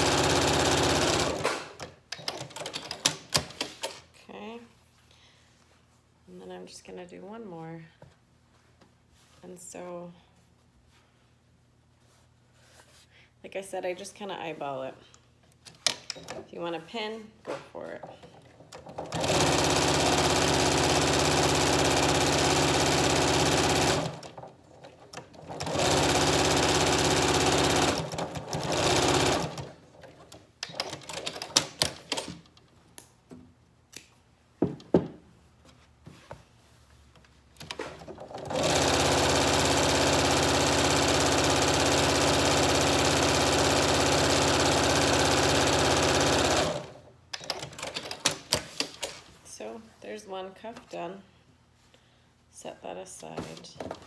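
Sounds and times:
sewing machine stitching: 0.0s - 3.7s, 18.2s - 32.3s, 37.7s - 49.1s.

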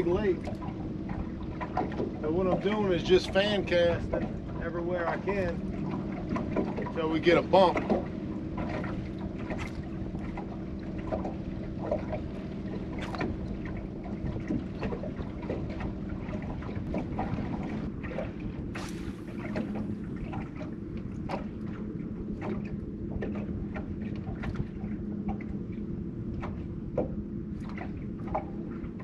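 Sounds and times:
steady low hum: 0.0s - 29.0s
water lapping against boat hull: 0.0s - 29.0s
wind on microphone: 11.8s - 25.6s.

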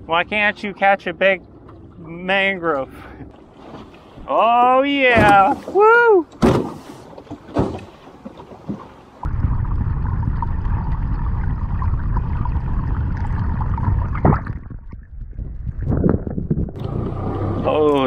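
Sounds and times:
muffled underwater rush: 9.0s - 18.0s.

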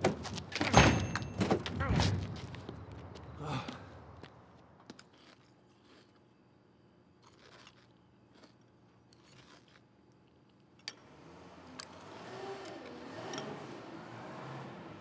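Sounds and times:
crunching cereal: 5.0s - 6.4s, 7.2s - 10.4s.

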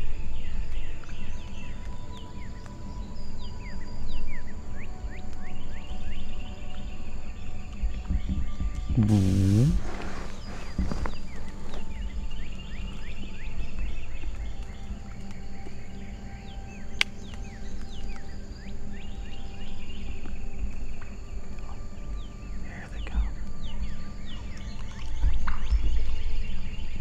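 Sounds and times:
songbirds chirping: 0.0s - 27.0s
low rumble: 7.8s - 11.4s.

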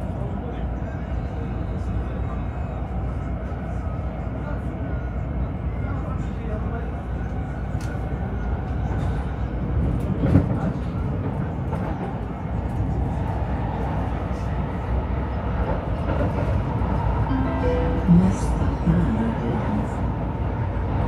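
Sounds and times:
train wheels rumbling on rails: 0.0s - 21.0s
brief pitched tone: 17.3s - 18.6s.

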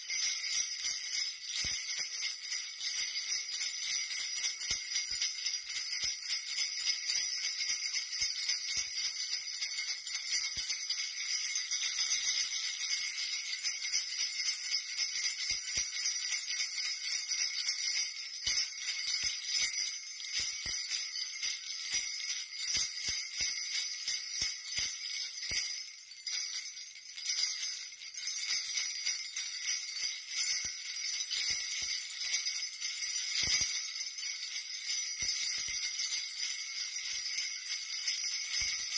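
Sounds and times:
sleigh bells jingling: 0.0s - 38.9s.

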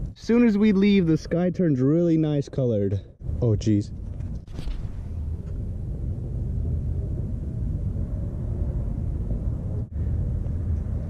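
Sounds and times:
wind buffeting microphone: 2.8s - 11.0s.

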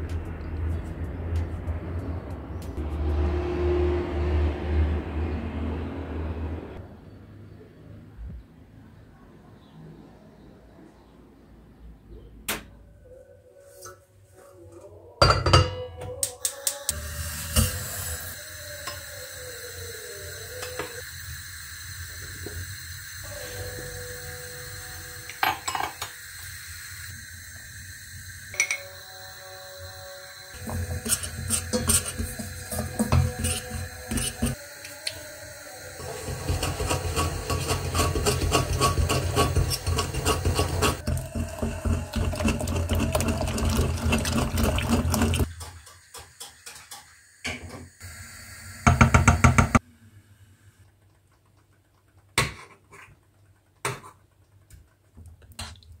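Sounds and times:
whisk beating in a metal pot: 30.6s - 34.6s, 36.0s - 46.8s
milk pouring: 40.2s - 45.5s.

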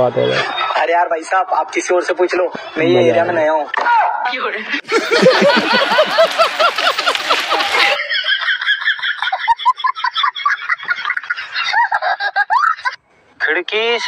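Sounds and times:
high-pitched laugh: 4.8s - 13.0s
laughter in bursts: 4.8s - 13.0s.

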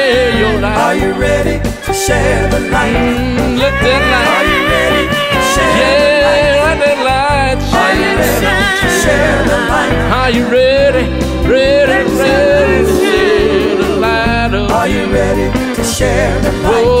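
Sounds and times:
rock band playing: 1.6s - 16.0s
person singing long notes: 8.6s - 15.9s.

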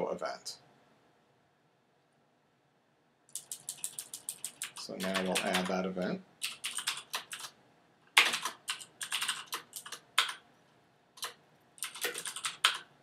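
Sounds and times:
typing on computer keyboard: 3.3s - 5.8s, 6.4s - 10.4s, 11.2s - 12.9s.

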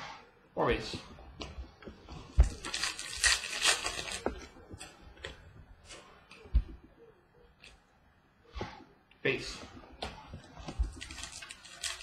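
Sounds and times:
wrapper crinkling torn open: 2.6s - 4.5s, 11.0s - 12.0s.

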